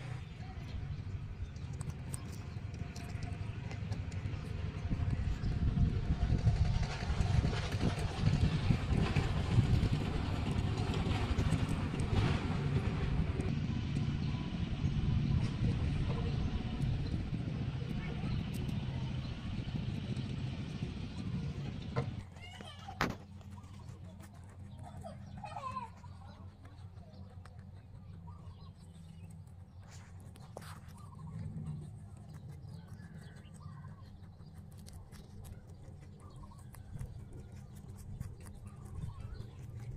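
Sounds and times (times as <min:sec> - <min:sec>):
low outdoor rumble: 0:00.0 - 0:39.9
rabbits chewing: 0:00.0 - 0:39.9
birds chirping faintly: 0:13.4 - 0:39.9.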